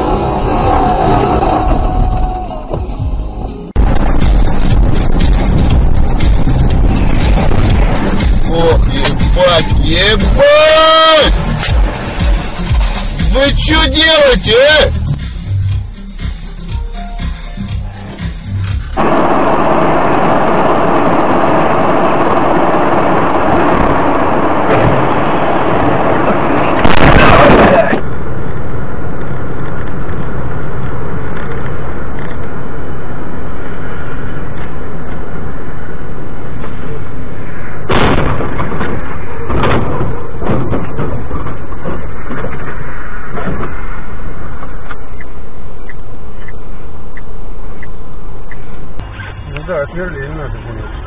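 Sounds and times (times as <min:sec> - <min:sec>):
car driving on snowy road: 0:00.0 - 0:16.7, 0:17.5 - 0:51.0.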